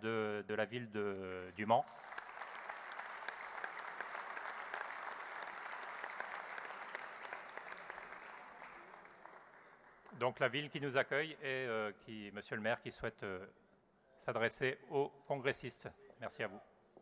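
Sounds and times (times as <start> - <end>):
audience applauding: 1.9 - 10.2.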